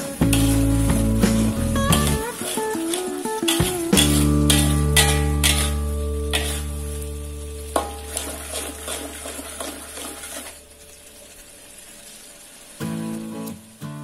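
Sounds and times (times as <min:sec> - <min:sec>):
metal spatula scraping a wok: 0:00.0 - 0:07.0, 0:07.7 - 0:10.6
paste sizzling in oil: 0:00.0 - 0:14.0.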